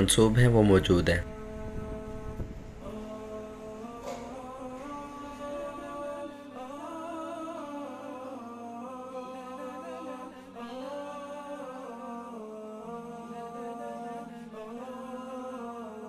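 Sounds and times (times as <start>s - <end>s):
low drone: 0.0s - 10.9s
wordless humming voices: 0.0s - 16.0s.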